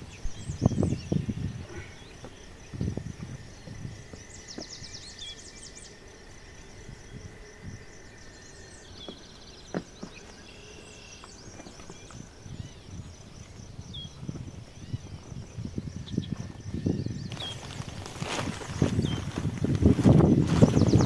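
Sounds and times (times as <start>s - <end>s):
small birds chirping: 0.0s - 21.0s
rubber boots being pulled on: 17.3s - 21.0s.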